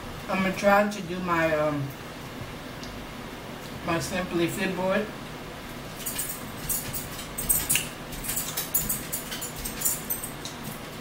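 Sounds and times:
cutlery clinking on dishes: 0:06.0 - 0:10.8.

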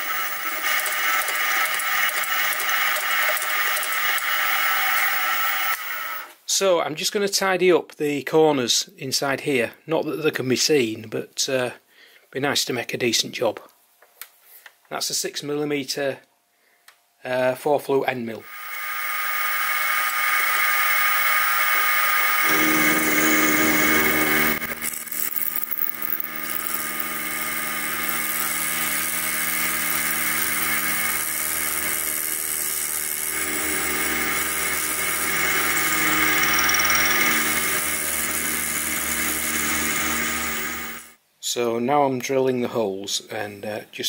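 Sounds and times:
milling machine motor whine: 0:00.0 - 0:06.3, 0:18.4 - 0:41.1.

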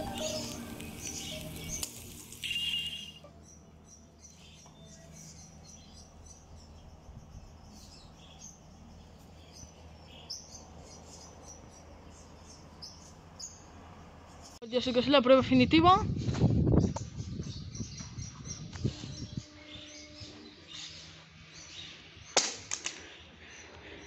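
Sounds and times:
background music: 0:00.0 - 0:01.8
small birds chirping: 0:00.0 - 0:14.9, 0:16.6 - 0:22.4
faint outdoor background: 0:00.0 - 0:24.0.

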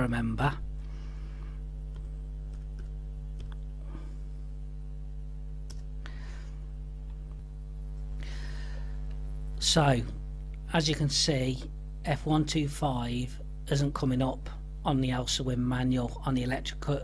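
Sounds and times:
electrical hum: 0:00.0 - 0:17.0
keyboard typing: 0:01.8 - 0:03.7.

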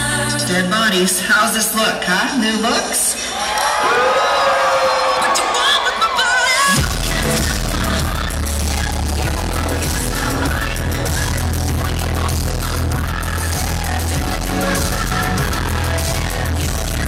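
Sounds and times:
electronic dance music: 0:04.8 - 0:17.0.

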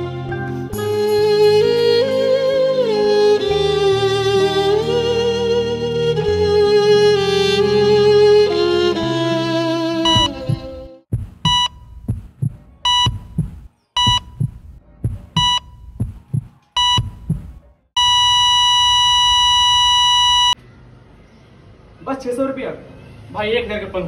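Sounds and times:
flatline tone: 0:10.0 - 0:10.7, 0:18.0 - 0:20.6
heart monitor beeps: 0:10.1 - 0:10.6, 0:11.4 - 0:20.6
low heartbeat thumps: 0:10.1 - 0:17.6.

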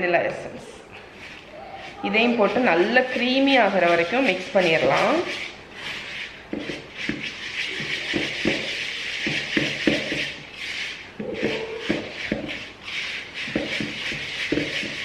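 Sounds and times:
spoon scraping gritty mixture: 0:00.3 - 0:15.0
spoon knocking on wooden bowl: 0:11.2 - 0:12.6.

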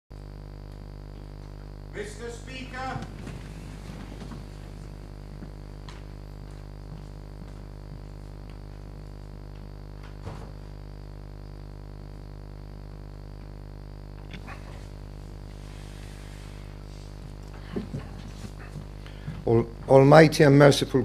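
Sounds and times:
electrical mains hum: 0:00.1 - 0:21.0.

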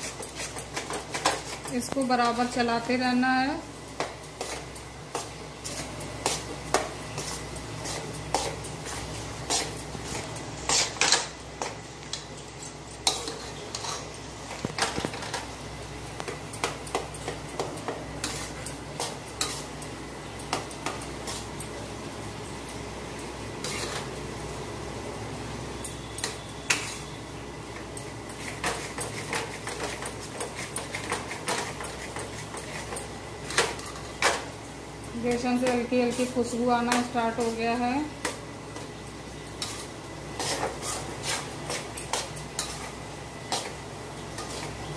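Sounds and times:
metal spatula scraping a metal pan: 0:13.0 - 0:14.2, 0:23.6 - 0:24.1, 0:26.2 - 0:27.2, 0:39.6 - 0:42.9.

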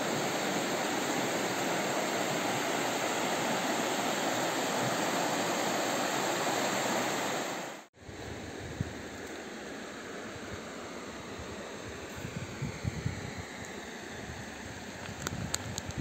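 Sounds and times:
river rushing over rocks: 0:00.0 - 0:07.9.

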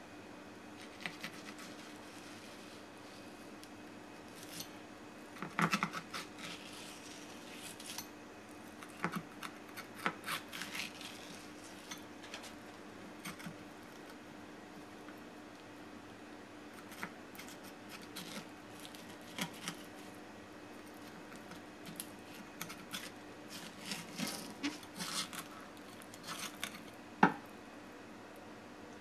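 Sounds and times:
steady low hum: 0:00.0 - 0:29.0
knife scraping bone and board: 0:00.8 - 0:02.9, 0:04.4 - 0:04.8, 0:05.4 - 0:08.1, 0:08.8 - 0:12.6, 0:13.2 - 0:13.6, 0:16.8 - 0:20.1, 0:21.1 - 0:26.9.

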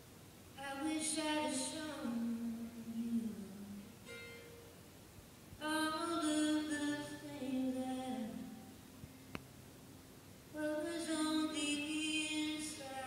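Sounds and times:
woman singing: 0:00.6 - 0:04.0, 0:05.6 - 0:08.7, 0:10.5 - 0:13.0
acoustic guitar: 0:00.6 - 0:13.0.

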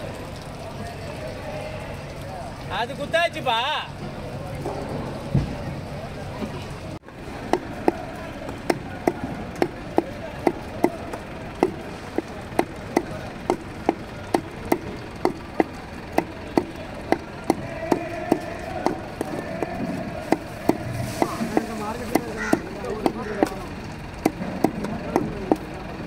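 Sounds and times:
knife chopping fish on wood: 0:07.5 - 0:23.5, 0:24.2 - 0:25.6.

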